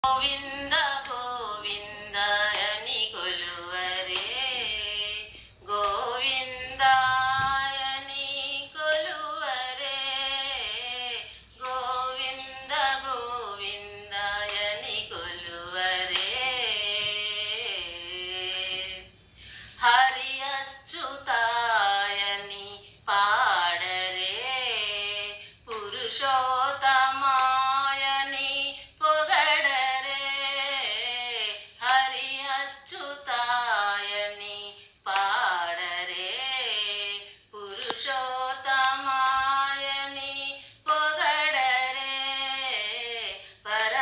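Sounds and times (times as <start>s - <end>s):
woman singing devotional song: 0.0s - 44.0s.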